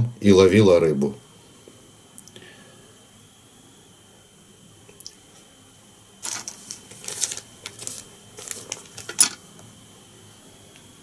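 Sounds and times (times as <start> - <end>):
crisp rustling and clicking: 6.3 - 9.4.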